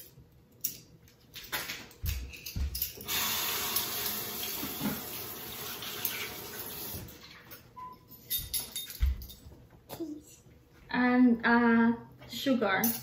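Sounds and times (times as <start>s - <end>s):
kitchen tap running: 3.0s - 7.5s.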